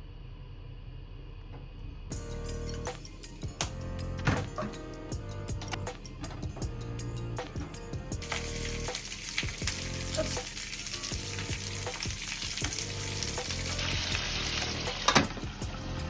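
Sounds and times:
peppers sizzling in frying pan: 8.2 - 16.0.

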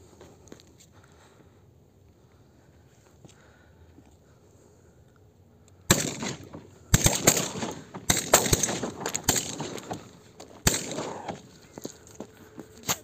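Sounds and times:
shotgun shots: 5.9 - 11.6.

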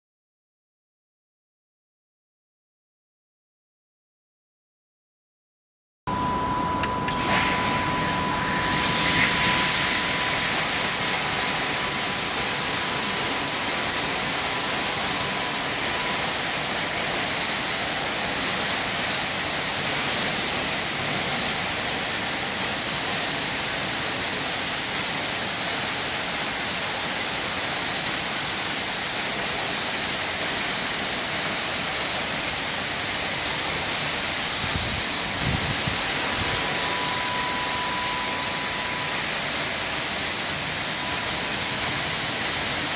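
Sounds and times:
thin high tone: 6.1 - 20.5, 34.6 - 42.9
water jets spraying car: 7.2 - 42.9.

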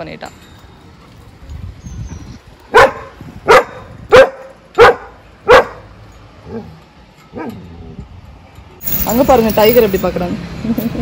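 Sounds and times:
dog barking: 2.7 - 5.8.

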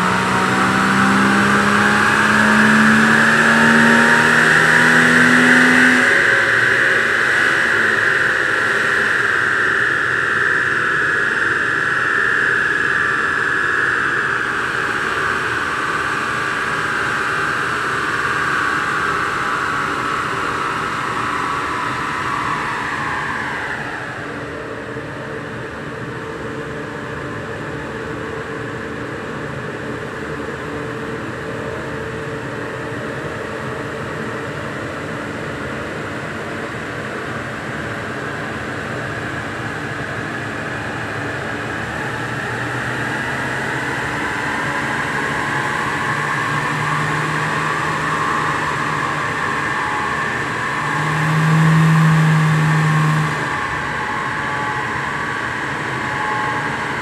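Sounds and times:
high whine of spinning rollers: 0.0 - 57.0
low mechanical hum: 43.9 - 57.0.

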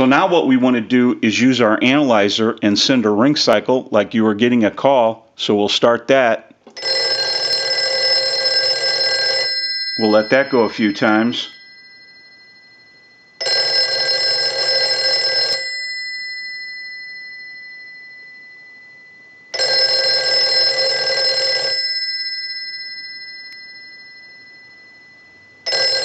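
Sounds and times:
telephone bell ringing: 6.8 - 26.0.

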